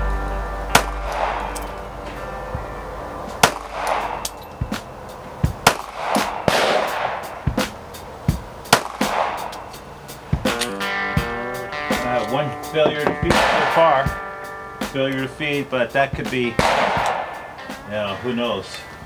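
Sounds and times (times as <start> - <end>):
background music: 0.0 - 19.0
pistol shots: 0.7 - 1.8, 3.4 - 4.5, 5.6 - 7.6, 8.7 - 9.7, 13.3 - 14.0, 16.6 - 17.5.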